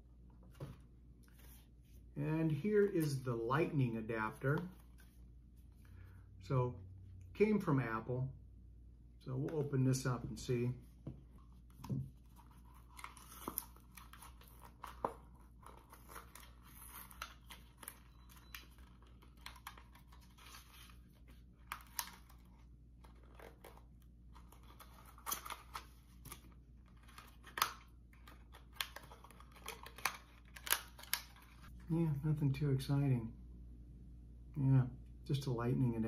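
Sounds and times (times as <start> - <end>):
paper packaging rustling and tearing: 12.3 - 31.7.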